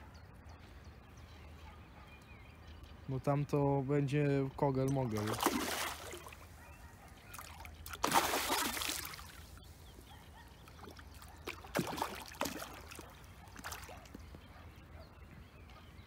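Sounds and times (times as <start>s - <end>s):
fish splashing in water: 5.2s - 6.4s, 7.3s - 9.6s, 10.6s - 14.2s.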